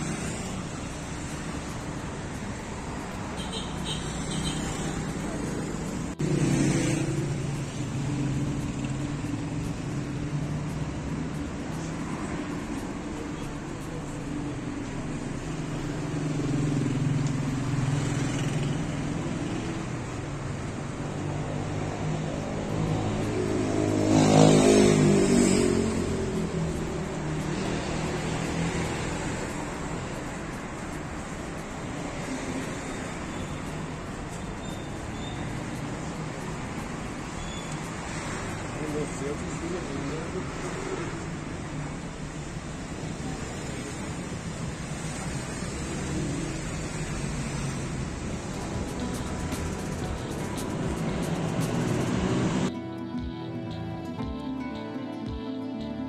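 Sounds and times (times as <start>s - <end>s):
low engine drone of traffic: 0.0s - 56.0s
car passing close by: 21.3s - 30.5s.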